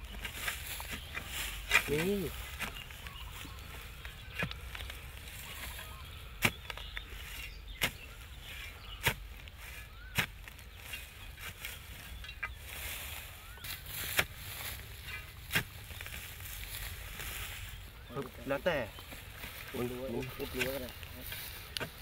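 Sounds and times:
digging tool chopping into soil: 0:00.2 - 0:03.2, 0:09.0 - 0:12.6, 0:13.7 - 0:14.6, 0:15.4 - 0:16.2.

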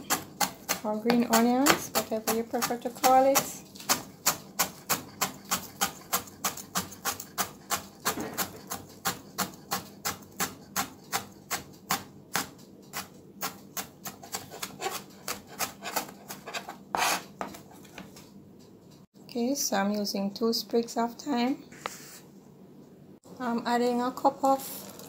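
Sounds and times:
knife chopping on plastic board: 0:00.0 - 0:18.1.

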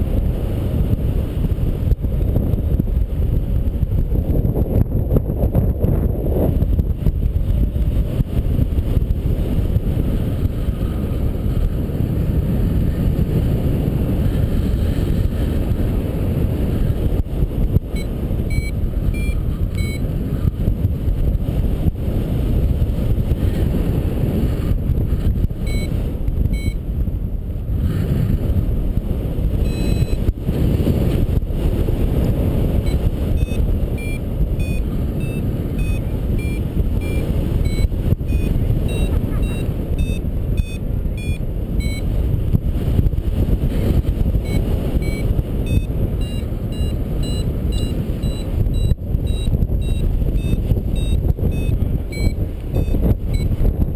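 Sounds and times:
wind rushing over microphone: 0:00.0 - 0:53.9
variometer high beeps: 0:17.9 - 0:20.1, 0:25.6 - 0:26.8, 0:29.6 - 0:30.3, 0:32.8 - 0:42.1, 0:44.4 - 0:53.6.

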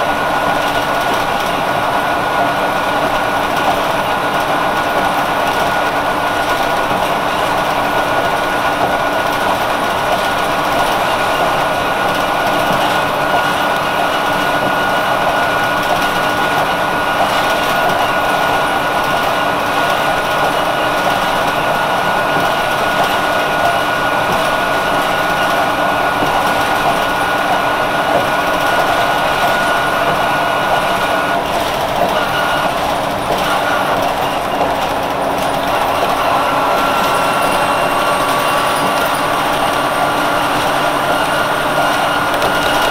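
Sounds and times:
bus engine running: 0:00.0 - 0:42.9.

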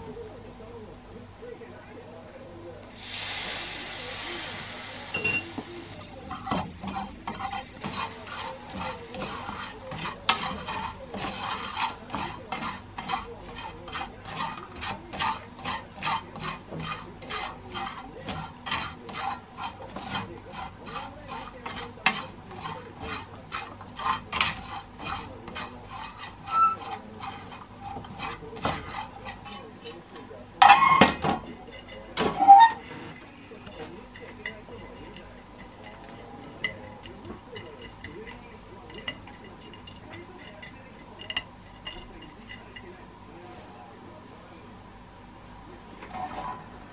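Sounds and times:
light sizzle: 0:02.8 - 0:29.5
scraping strokes in a pan: 0:02.9 - 0:43.0.

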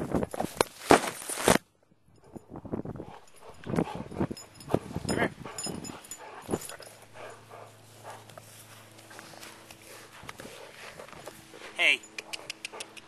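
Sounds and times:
dog puffing breath: 0:03.0 - 0:13.0.

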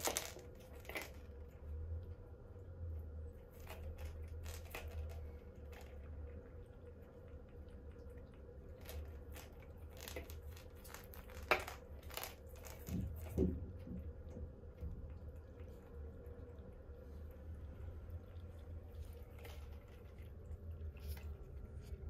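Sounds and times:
kitten claws tapping and scratching: 0:00.0 - 0:01.6, 0:03.2 - 0:16.7
low hum: 0:00.0 - 0:22.0.

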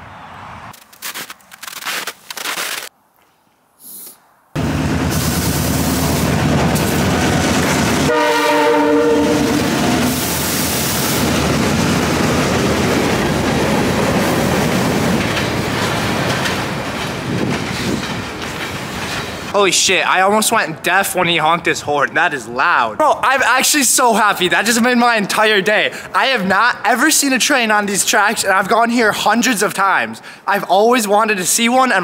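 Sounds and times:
diesel locomotive running: 0:04.6 - 0:19.6
rail cars rumbling past: 0:04.6 - 0:20.4
train air horn: 0:08.0 - 0:11.0.

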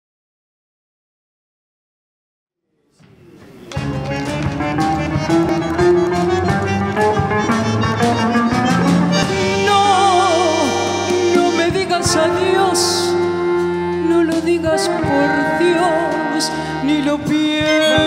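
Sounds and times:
live band playing: 0:03.2 - 0:18.0
wavering melody line: 0:17.5 - 0:18.0.

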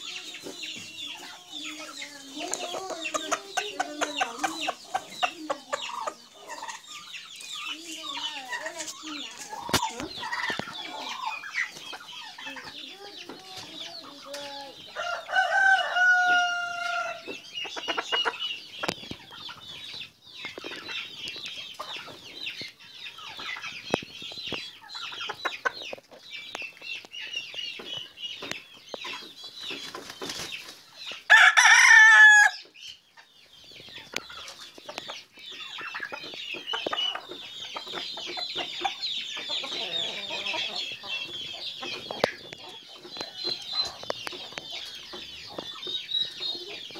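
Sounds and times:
chickens clucking: 0:00.0 - 0:46.9
rooster crowing: 0:15.0 - 0:17.2, 0:31.3 - 0:32.6.

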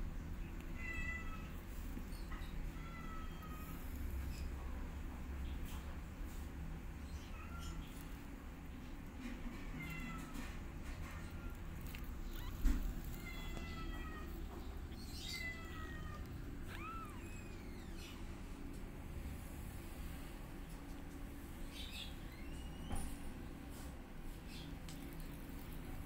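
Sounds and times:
kittens mewing: 0:09.6 - 0:18.8.

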